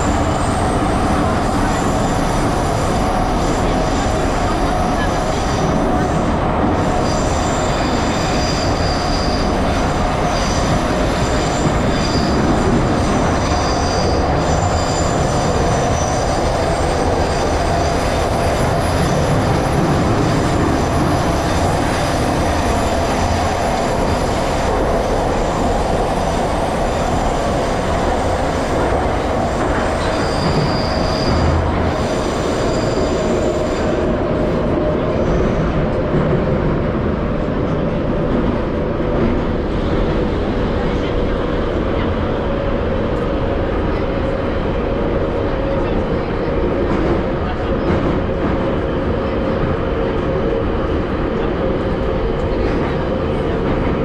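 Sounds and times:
rumble of wheels on rails: 0.0 - 54.0
high thin wheel squeal: 7.1 - 9.6, 11.5 - 12.4, 30.0 - 31.6.

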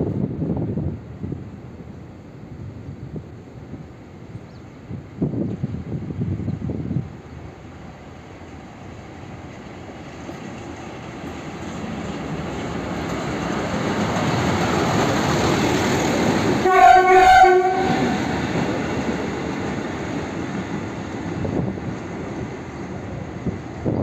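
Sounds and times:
rail motor car rumbling past: 0.0 - 24.0
horn: 16.6 - 18.2.

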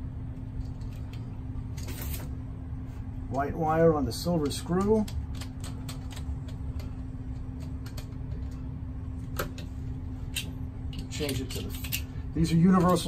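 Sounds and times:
steady low hum: 0.0 - 13.0
screwdriver clicks and scrapes on metal: 10.4 - 12.0.

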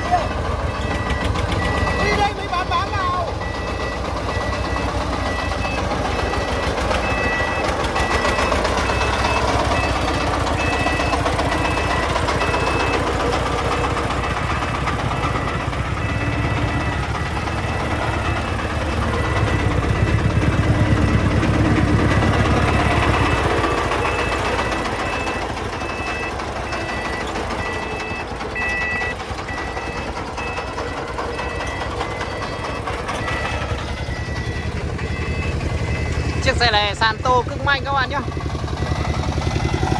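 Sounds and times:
diesel truck engine running hard: 0.0 - 39.9.

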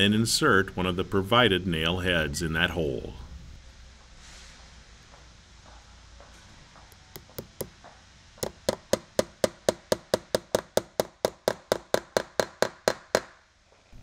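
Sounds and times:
small hammer tapping nail: 6.8 - 7.8, 8.4 - 13.4.

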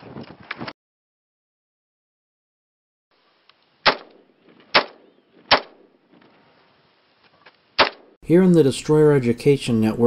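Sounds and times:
rifle shots with echo: 3.8 - 6.0, 7.8 - 8.1.

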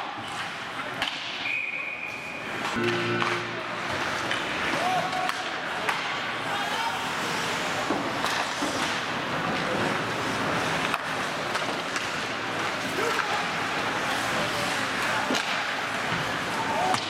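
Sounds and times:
hockey sticks or puck clacking: 0.1 - 1.6, 2.2 - 6.3, 7.0 - 17.0
indistinct voices: 2.8 - 4.0
skates scraping on ice: 7.0 - 17.0.

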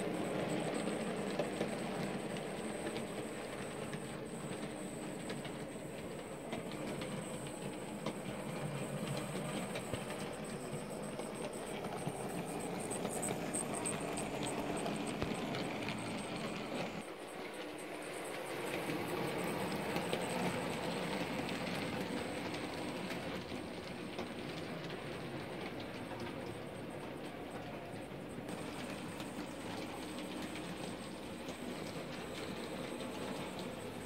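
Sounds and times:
model train motors whirring: 0.0 - 34.0.

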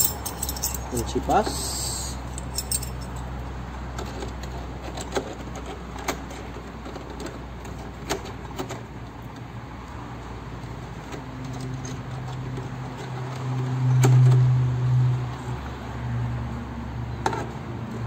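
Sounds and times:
metal wrenches clinking: 0.0 - 3.3.

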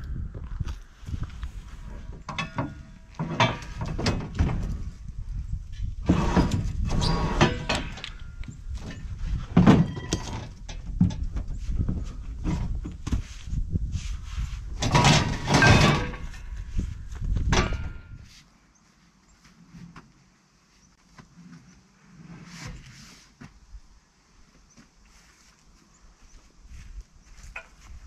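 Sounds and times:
scrap steel scraping and clanking: 1.7 - 5.0, 5.8 - 10.9, 14.4 - 18.3.

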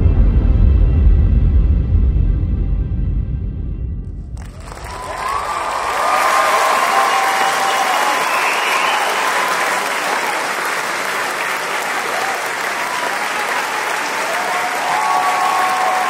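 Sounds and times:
large audience applauding: 4.4 - 16.0.

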